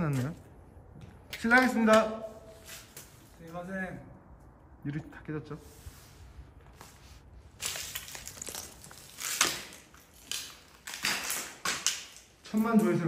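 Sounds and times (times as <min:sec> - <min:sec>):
footsteps crunching over broken glass: 0:07.6 - 0:12.6.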